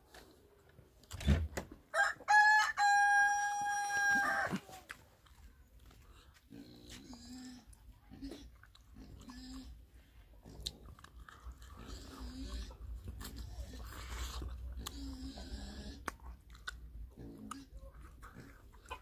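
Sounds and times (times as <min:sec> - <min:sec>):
rooster crowing: 0:01.9 - 0:04.6.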